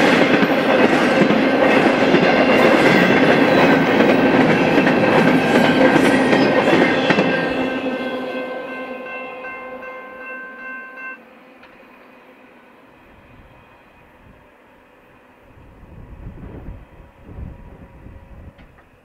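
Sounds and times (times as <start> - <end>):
freight train wheel clatter: 0.0 - 7.9.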